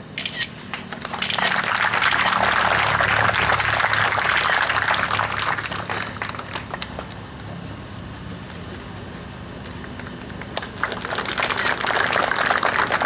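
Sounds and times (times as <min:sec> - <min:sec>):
crowd clapping: 0:00.6 - 0:07.6, 0:09.6 - 0:13.0.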